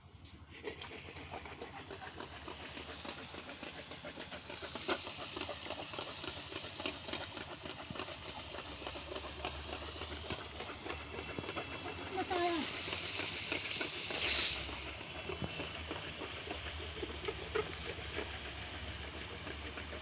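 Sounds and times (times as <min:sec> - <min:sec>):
food deep-frying in oil: 0:04.5 - 0:20.0.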